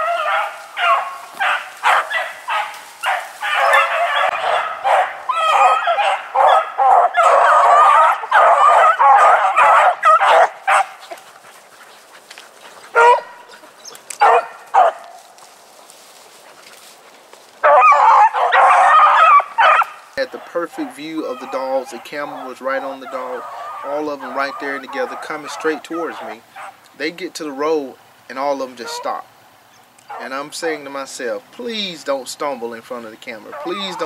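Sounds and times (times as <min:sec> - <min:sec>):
single dog cries: 0:00.0 - 0:11.1, 0:17.6 - 0:20.0
beagles baying: 0:00.0 - 0:26.8, 0:28.7 - 0:30.4, 0:33.4 - 0:34.0.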